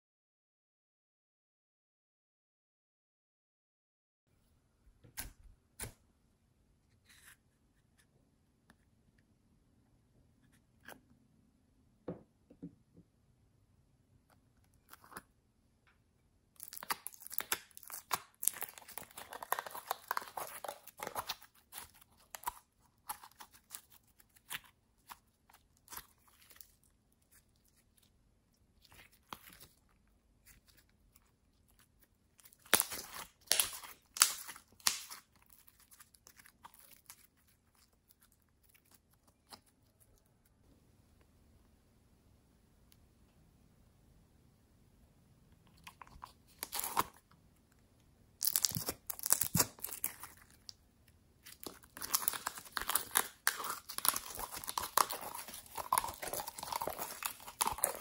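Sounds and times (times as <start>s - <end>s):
slime crackling and popping: 16.6s - 27.8s, 31.6s - 39.7s, 48.4s - 50.8s, 51.4s - 58.0s.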